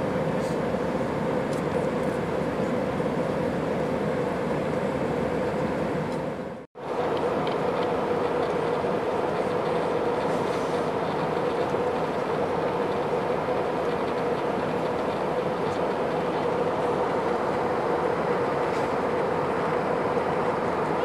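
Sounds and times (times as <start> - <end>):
engine and airflow rush: 0.0 - 21.0.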